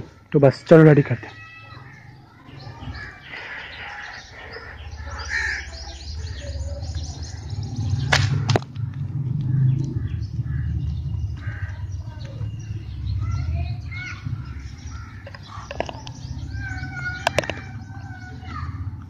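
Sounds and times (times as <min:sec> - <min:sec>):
birds chirping: 0:00.0 - 0:19.0
sharp clicks: 0:17.2 - 0:17.7.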